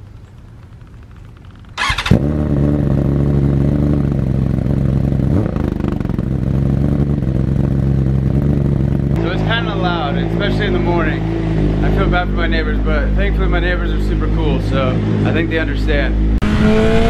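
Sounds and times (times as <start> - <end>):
motorcycle engine loud idle: 0.0 - 9.3
motorcycle engine cranking: 0.1 - 3.3.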